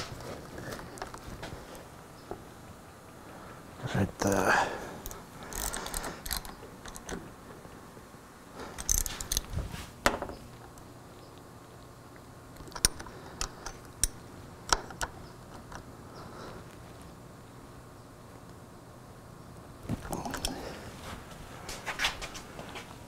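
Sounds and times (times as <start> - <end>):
wrench clicking on bolts: 5.0 - 7.3.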